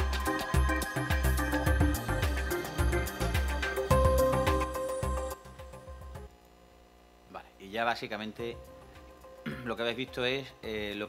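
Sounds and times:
instrumental music with steady beat: 0:00.0 - 0:06.3.

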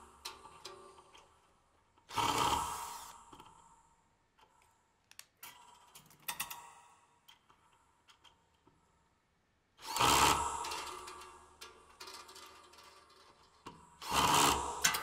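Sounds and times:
metal clicks and short rings: 0:10.5 - 0:13.8.

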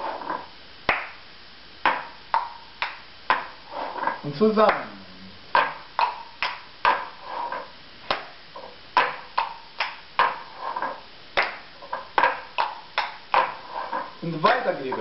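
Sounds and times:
cups knocking on a table: 0:01.8 - 0:04.8, 0:05.5 - 0:14.2.

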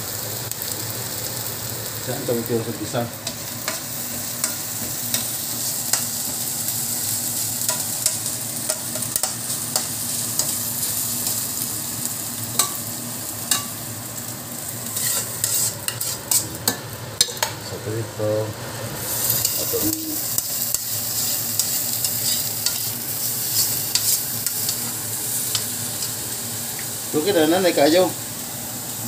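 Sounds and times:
food sizzling in oil: 0:00.0 - 0:29.0
spatula scraping a pan: 0:14.8 - 0:16.6.

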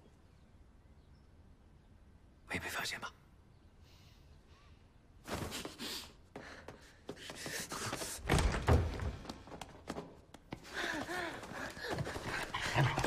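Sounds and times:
people scuffling: 0:05.3 - 0:13.0.

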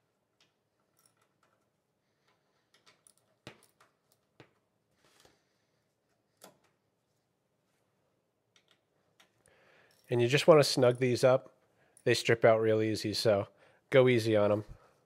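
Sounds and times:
small metal clicks and taps: 0:08.5 - 0:09.4.

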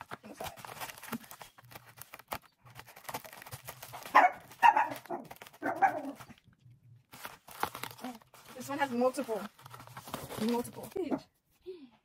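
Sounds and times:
padded mailer crackling: 0:00.0 - 0:06.5, 0:07.1 - 0:11.2
dog barking: 0:04.1 - 0:06.2.

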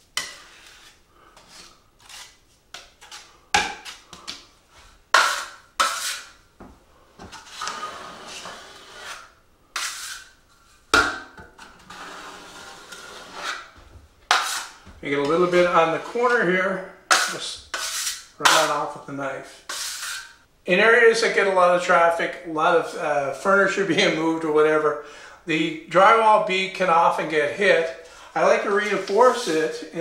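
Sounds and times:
drywall knife scraping compound: 0:00.0 - 0:04.5, 0:05.1 - 0:06.4, 0:07.2 - 0:16.5, 0:17.1 - 0:18.9, 0:19.6 - 0:20.4, 0:27.8 - 0:30.0.

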